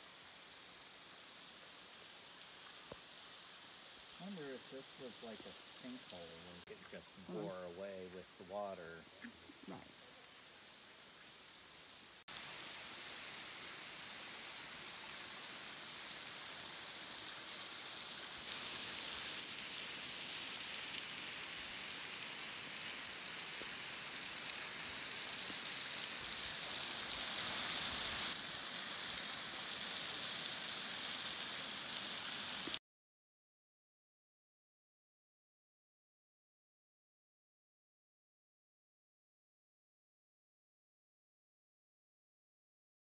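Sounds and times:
waterfall splashing: 0.4 - 9.0, 12.2 - 32.8.

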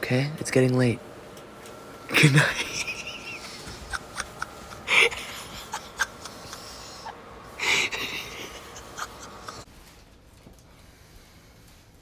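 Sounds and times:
person huffing breath: 4.9 - 9.6
rustling: 9.6 - 12.0.

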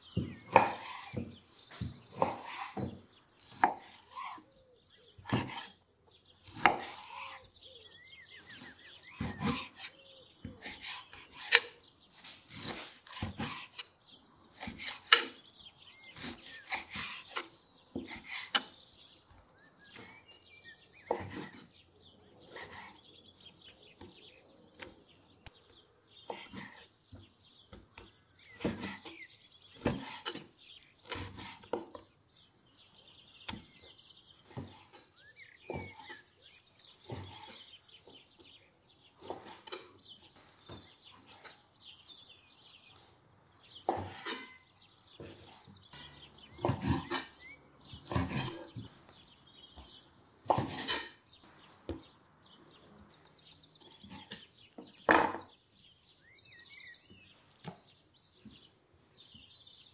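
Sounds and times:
birds chirping: 0.0 - 59.9
knife slicing on wooden board: 5.2 - 5.8, 8.5 - 11.8, 14.6 - 15.4, 29.8 - 31.9, 48.1 - 48.8.

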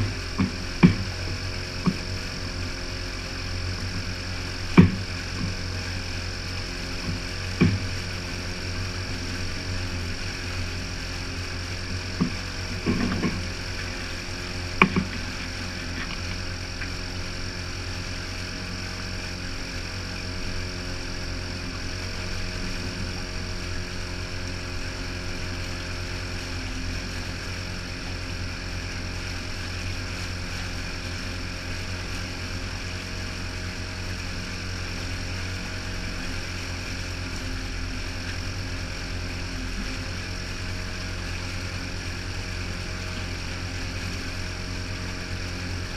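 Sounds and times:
sharp knocks: 0.0 - 1.2, 4.7 - 5.5, 7.6 - 7.9
outboard motor running: 0.0 - 45.9
water churning: 0.0 - 45.9.

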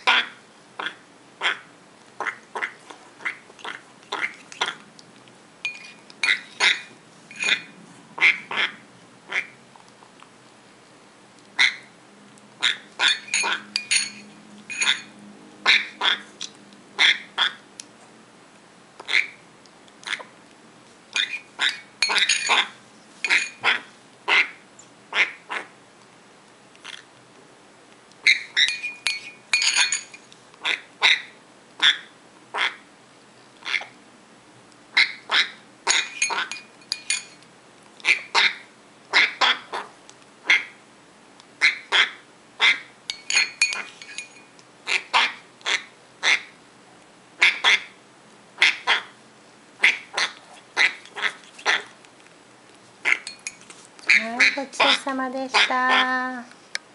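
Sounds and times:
parrot chick begging calls: 15.7 - 16.3, 28.2 - 28.8.

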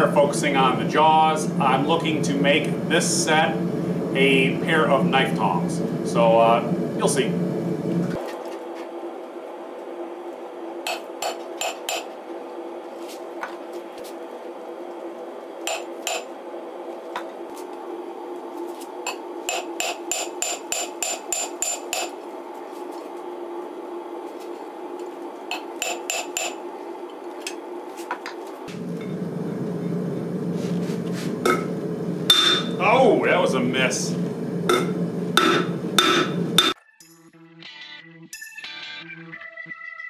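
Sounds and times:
steady hum: 0.0 - 36.8
hammer ringing on anvil: 32.3 - 32.8, 34.7 - 36.8.

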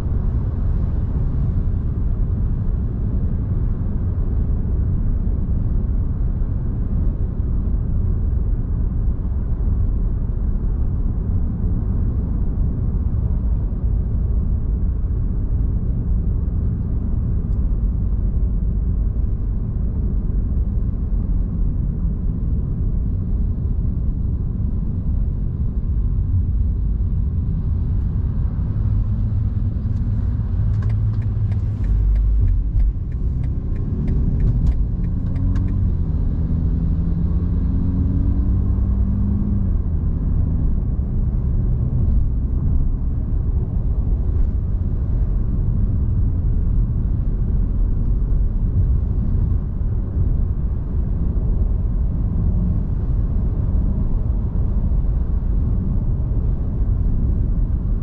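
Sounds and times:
car engine: 0.0 - 58.0
road and tyre rumble: 0.0 - 58.0
turn signal ticking: 29.9 - 36.0.

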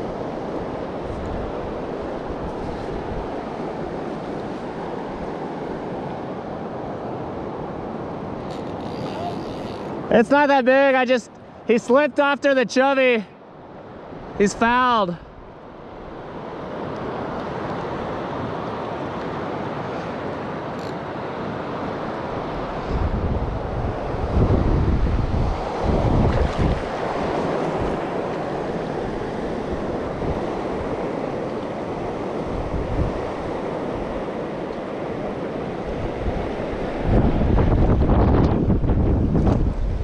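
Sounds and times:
wind buffeting microphone: 22.4 - 31.2, 31.8 - 34.4, 35.6 - 40.0.

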